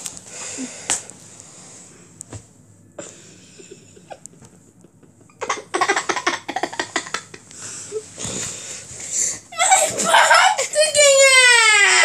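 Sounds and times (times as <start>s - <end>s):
child giggling: 5.0s - 7.4s, 9.6s - 12.0s.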